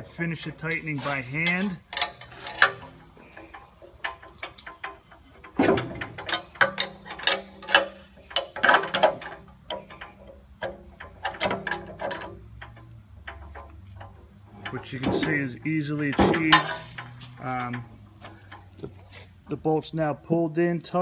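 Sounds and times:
tools clinking on metal: 0:00.6 - 0:19.0
ratchet wrench clicking: 0:00.7 - 0:18.9.

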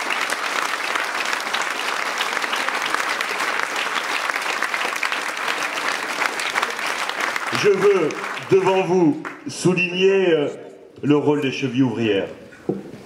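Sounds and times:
crowd applauding: 0:00.0 - 0:09.9.

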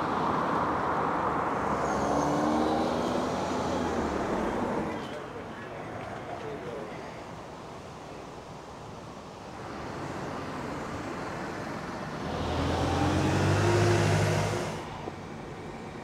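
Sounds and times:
vehicle passing close by: 0:12.2 - 0:15.0.

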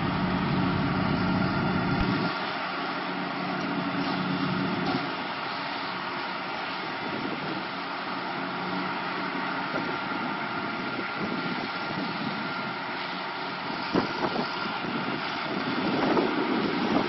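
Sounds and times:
engine drone: 0:00.0 - 0:17.0
fire hose spraying water: 0:00.0 - 0:17.0.

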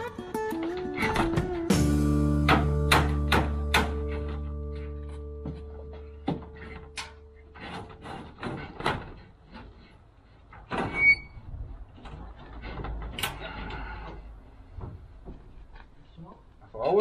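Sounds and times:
brief squeak: 0:10.9 - 0:11.4.

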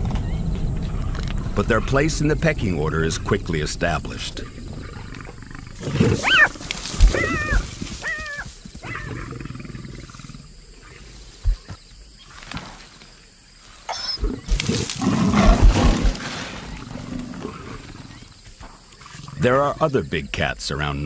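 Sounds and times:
lion growling: 0:00.8 - 0:11.0, 0:14.2 - 0:19.9
jackal yelping: 0:04.6 - 0:09.3.

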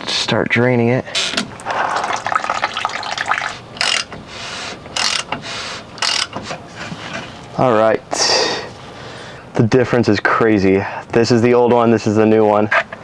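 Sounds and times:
fuel trickling and splashing: 0:01.5 - 0:04.1
ratchet clicking: 0:03.8 - 0:04.2, 0:04.9 - 0:05.4, 0:06.0 - 0:06.4.

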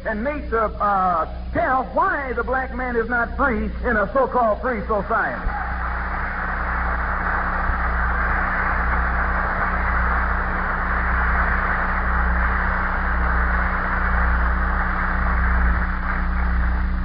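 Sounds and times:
low hum: 0:00.0 - 0:17.0
audience applauding: 0:05.5 - 0:17.0.

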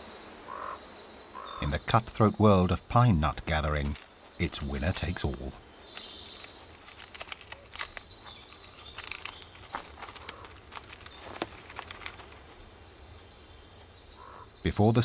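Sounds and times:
chipmunk gnawing pine cone: 0:03.8 - 0:12.7.

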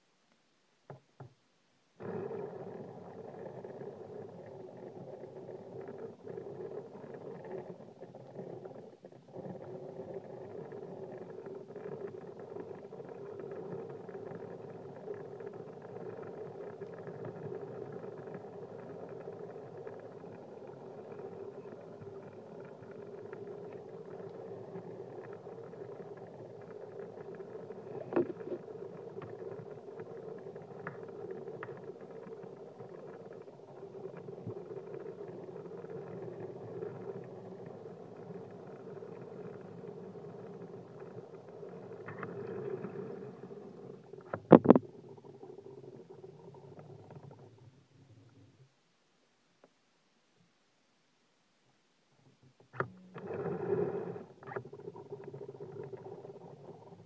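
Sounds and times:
water bubbling in bong: 0:27.4 - 0:29.4.

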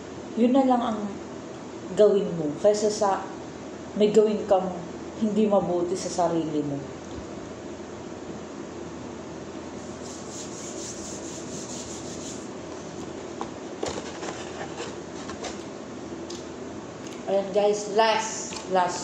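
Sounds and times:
steady low hiss: 0:00.0 - 0:19.0
palms rubbing together: 0:09.8 - 0:12.5.

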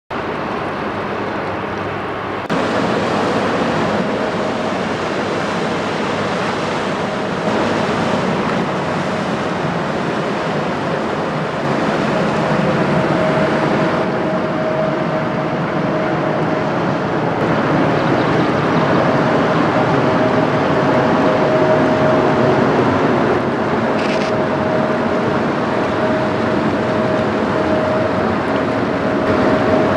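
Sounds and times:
diesel engine drone: 0:00.1 - 0:29.9
rushing water: 0:00.1 - 0:29.9.

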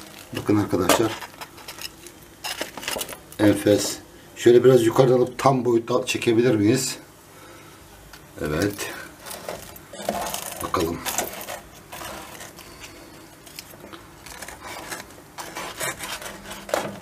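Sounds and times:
knife crunching crisp pastry: 0:10.0 - 0:17.0
cutlery scraping wooden board: 0:14.3 - 0:17.0.

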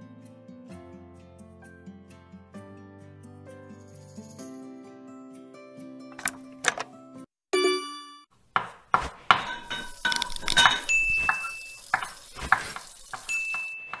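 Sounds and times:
utensils clinking against pots: 0:06.2 - 0:06.8, 0:09.0 - 0:14.0
high steady ring: 0:13.3 - 0:14.0.

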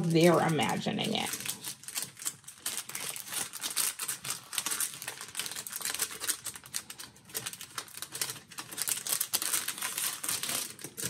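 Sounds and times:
paper pages rustling and clicking: 0:00.0 - 0:11.0.

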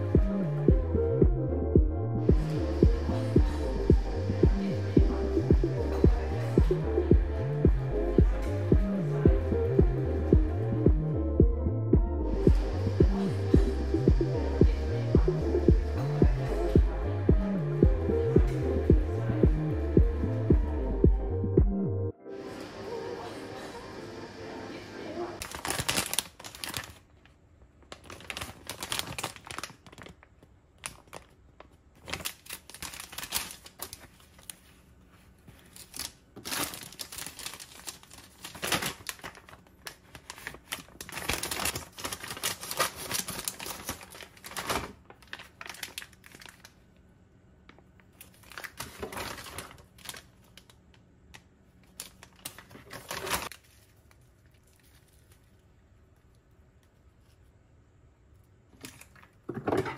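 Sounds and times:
plastic packaging crinkling: 0:25.4 - 0:47.0, 0:47.7 - 0:56.4.

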